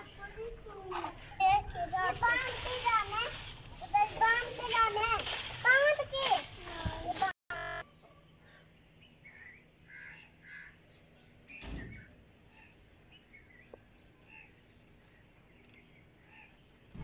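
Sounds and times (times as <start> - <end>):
insects droning: 7.5 - 17.0.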